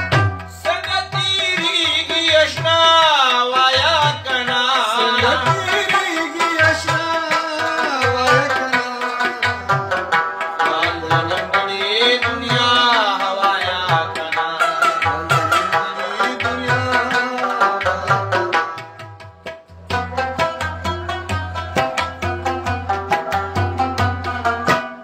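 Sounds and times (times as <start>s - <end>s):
plucked string melody: 0.0s - 25.0s
man singing: 0.5s - 19.0s.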